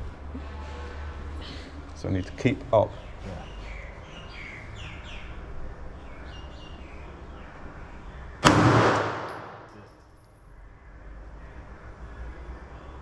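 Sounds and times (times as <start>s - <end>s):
pistol shot with echo: 8.4s - 9.7s.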